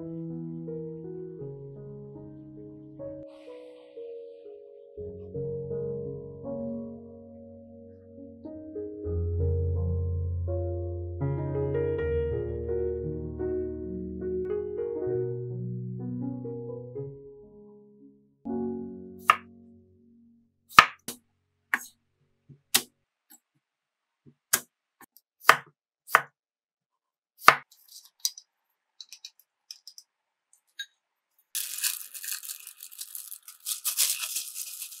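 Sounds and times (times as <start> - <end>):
knife chopping on cutting board: 20.7 - 21.9, 25.4 - 26.3, 27.4 - 27.7
plastic bag crinkling: 31.5 - 35.0.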